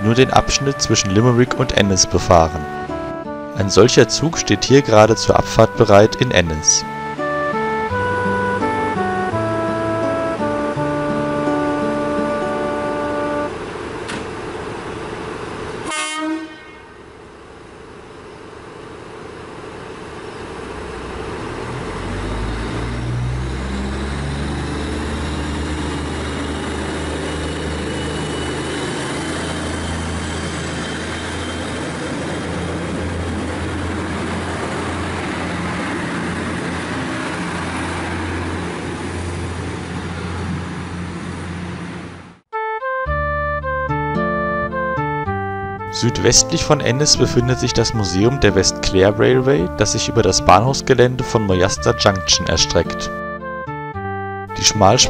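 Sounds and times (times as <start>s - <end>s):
diesel engine pulling away: 0.0s - 15.9s, 16.6s - 42.4s, 43.1s - 55.0s
train horn blast: 7.9s - 13.6s, 15.8s - 17.2s.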